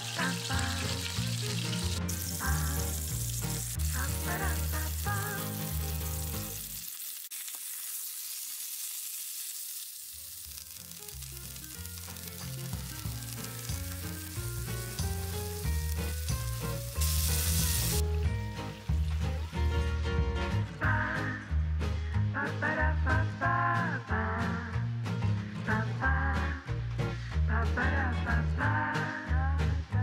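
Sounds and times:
steak sizzling in a frying pan: 0.0 - 19.9
light background music: 11.2 - 30.0.

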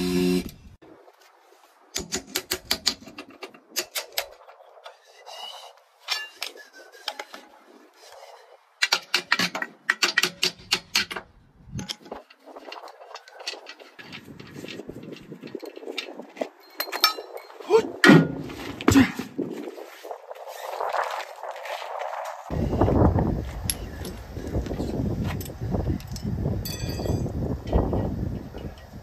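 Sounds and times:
metal tools clinking: 8.8 - 17.7, 25.3 - 27.8.

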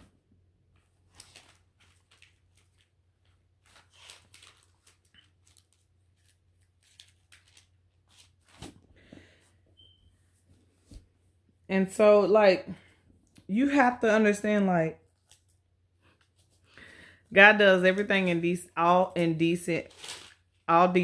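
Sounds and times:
thin pages rustling: 0.8 - 9.0, 15.1 - 16.8, 19.8 - 20.6.

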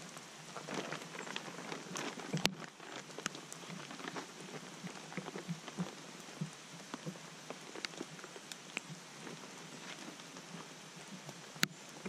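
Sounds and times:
plastic tarp rustling: 0.0 - 11.5
rain pattering: 0.0 - 12.0.

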